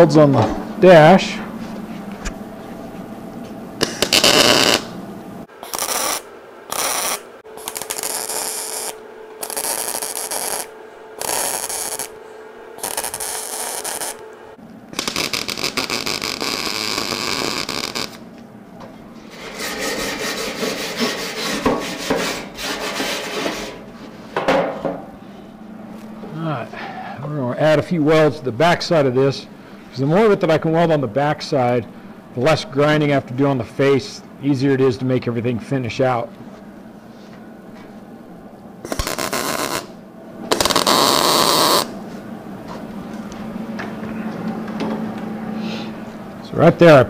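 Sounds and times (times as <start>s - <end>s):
welder arc crackling: 3.8s - 5.0s, 5.6s - 12.2s, 12.8s - 14.2s, 14.9s - 18.3s, 38.8s - 41.9s.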